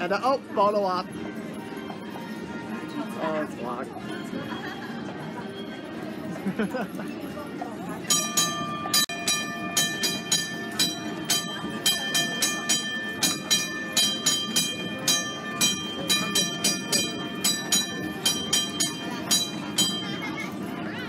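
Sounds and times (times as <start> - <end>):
streetcar rolling rumble: 0.0 - 21.0
streetcar bell clanging: 7.9 - 20.9.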